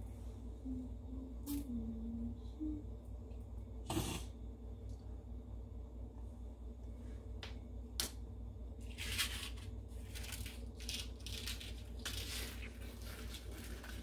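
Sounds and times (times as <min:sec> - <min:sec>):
low steady hum: 0:00.0 - 0:14.0
paper crinkling: 0:08.8 - 0:14.0.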